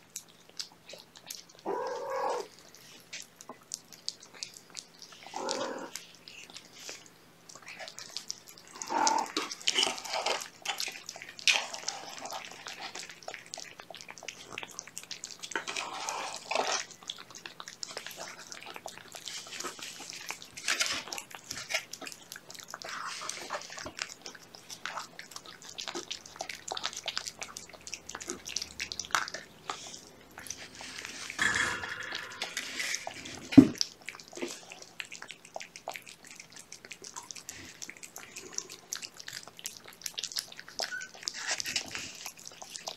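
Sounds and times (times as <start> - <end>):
cats chewing and lapping food: 0.0 - 42.9.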